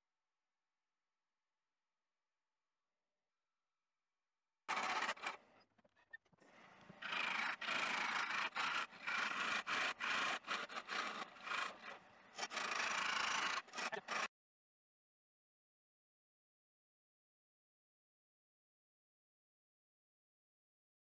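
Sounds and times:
wood lathe tool scraping wood: 4.7 - 5.5, 6.6 - 14.3.

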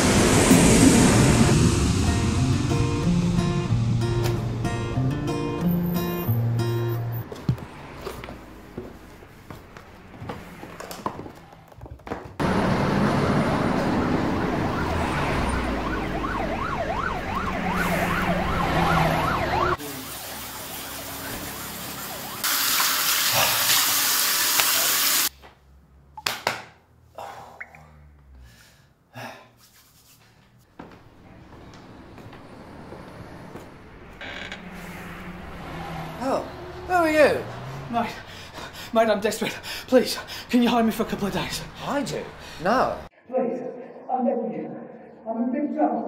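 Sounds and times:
loud hiss: 0.0 - 4.7
rushing noise: 0.0 - 10.1, 12.4 - 22.7, 31.4 - 43.1
police siren wailing: 12.4 - 22.5, 31.4 - 38.8.

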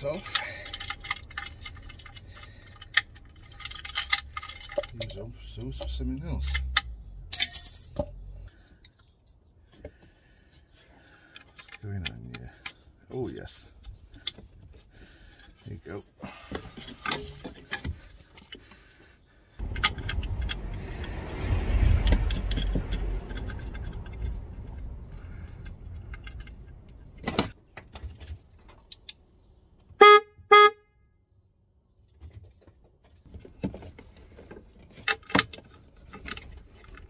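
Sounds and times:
rustling and clicks of handling: 0.0 - 7.0, 8.5 - 20.6, 32.1 - 37.0
car horn beeps: 30.0 - 31.0.

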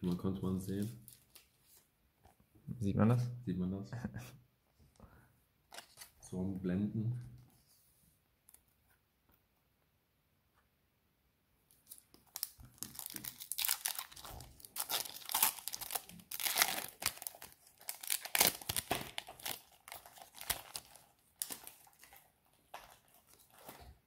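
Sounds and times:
foil wrapper crinkling: 11.8 - 23.9.

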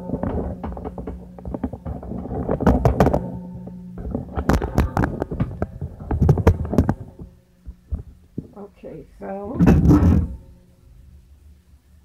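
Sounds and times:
close knocks: 0.0 - 8.5.

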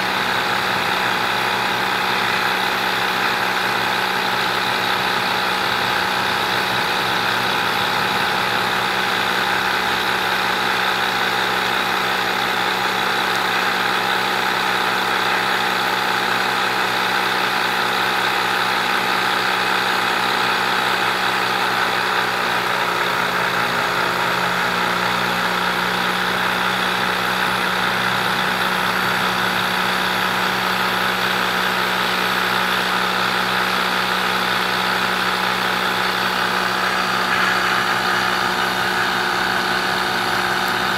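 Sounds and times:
electric motors humming: 0.0 - 40.9.

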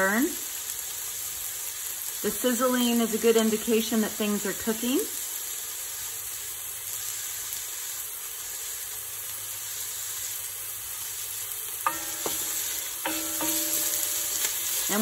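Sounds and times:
vegetables sizzling in hot oil: 0.0 - 15.0
wooden spoon knocking pot: 11.9 - 15.0.

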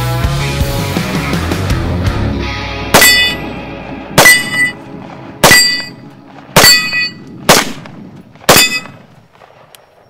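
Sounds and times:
rifle shots: 2.9 - 3.5, 4.2 - 9.8
ringing clang of steel plate: 3.0 - 3.5, 4.2 - 4.8, 5.4 - 6.0, 6.6 - 7.2, 8.5 - 9.0.

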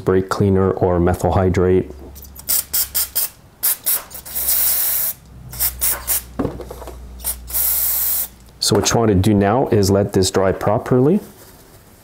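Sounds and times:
aerosol spray hissing: 2.5 - 6.3, 7.2 - 8.4.

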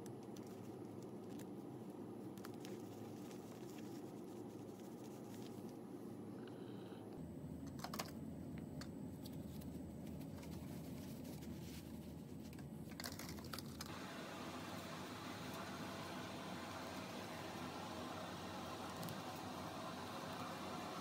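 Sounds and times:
low room hum: 0.0 - 21.0.

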